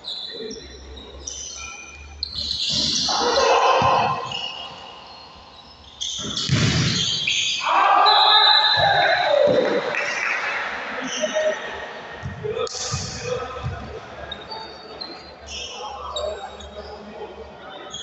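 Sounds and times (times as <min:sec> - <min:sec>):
sneakers squeaking on court: 0:00.0 - 0:07.6, 0:12.2 - 0:17.0.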